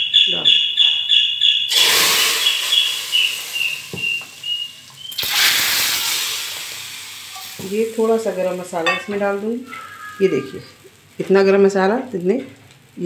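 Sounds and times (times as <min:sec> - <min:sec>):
high whistling tone: 0:01.4 - 0:05.4
hot oil sizzling: 0:01.7 - 0:13.0.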